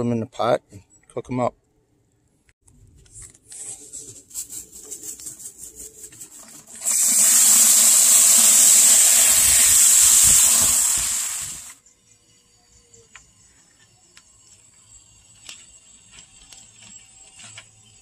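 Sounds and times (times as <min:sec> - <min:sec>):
hose spraying water into bucket: 0:06.0 - 0:11.8.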